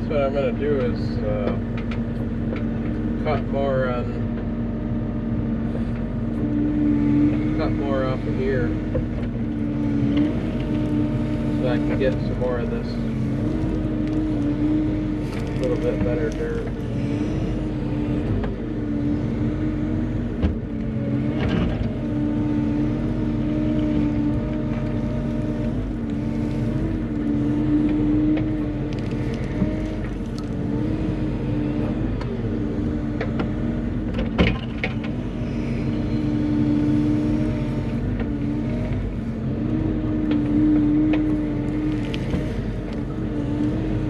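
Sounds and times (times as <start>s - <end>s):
excavator diesel engine: 0.0s - 44.0s.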